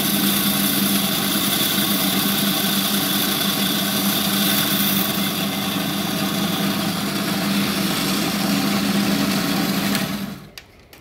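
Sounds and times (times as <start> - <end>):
band saw humming and whining: 0.0 - 10.5.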